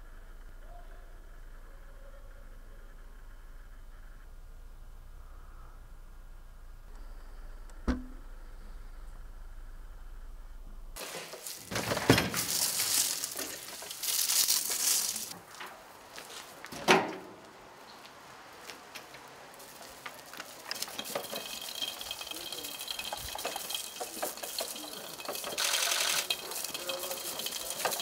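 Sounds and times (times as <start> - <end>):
wheelchair clattering and rustling: 11.0 - 17.4, 19.0 - 28.0.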